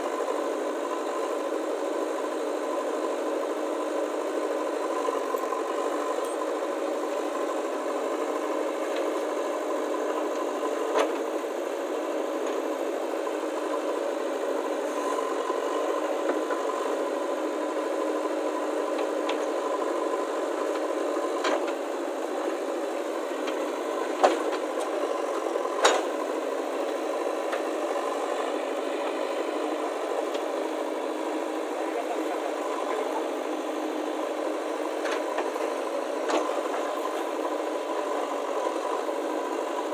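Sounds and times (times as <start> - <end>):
diesel engine under load: 0.0 - 39.9.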